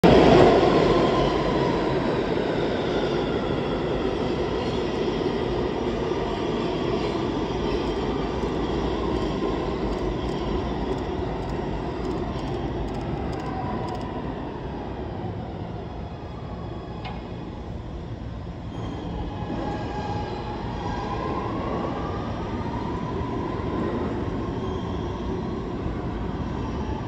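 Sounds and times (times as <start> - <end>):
train wheels rumbling on rails: 0.0 - 14.7.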